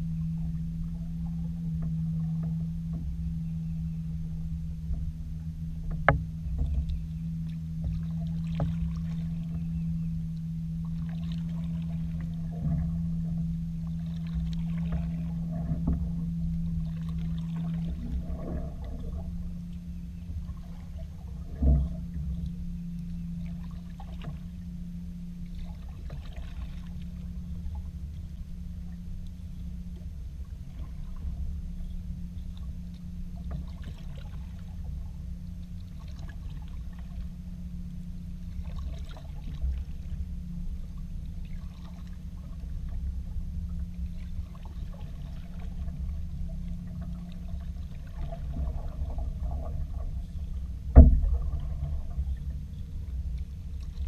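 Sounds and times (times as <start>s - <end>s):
low hum and rumble: 0.0s - 54.0s
paddle strokes in water: 4.3s - 54.0s
paddle knocking plastic hull: 5.8s - 7.0s, 48.2s - 52.5s.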